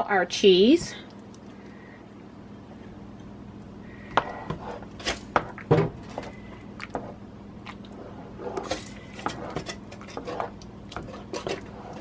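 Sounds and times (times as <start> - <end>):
spoon stirring thick soup: 4.2 - 12.0
spoon knocking and scraping pot: 8.5 - 12.0.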